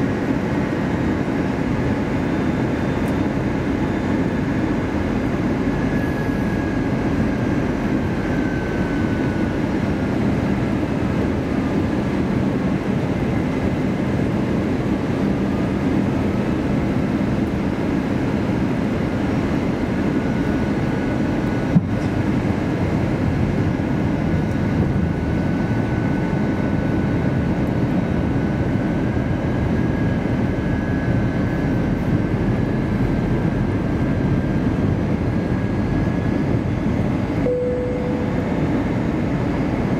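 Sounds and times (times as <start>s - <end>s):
jet engine drone: 0.0s - 39.9s
faint whining tones: 35.4s - 39.9s.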